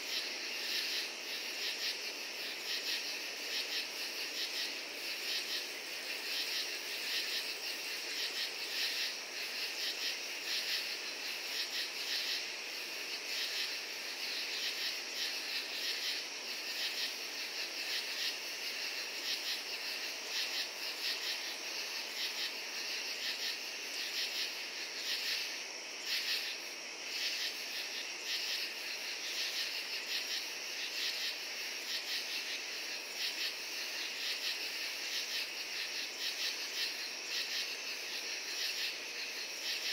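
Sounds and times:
crickets and katydids trilling: 0.0 - 39.9.

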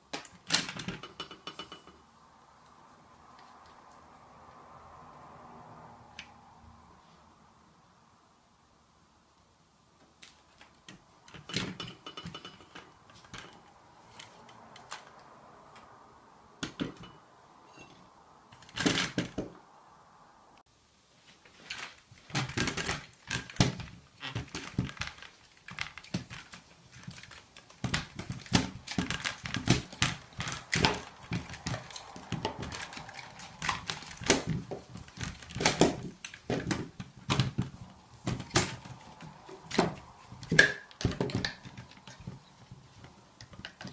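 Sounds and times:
plastic clicks and knocks: 21.8 - 43.9.

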